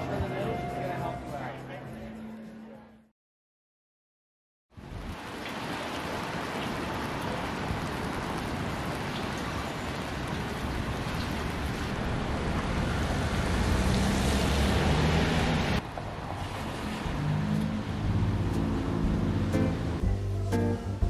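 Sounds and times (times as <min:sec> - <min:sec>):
steady rain: 0:04.7 - 0:19.9
wet street hiss: 0:04.8 - 0:21.0
low engine hum: 0:16.6 - 0:21.0.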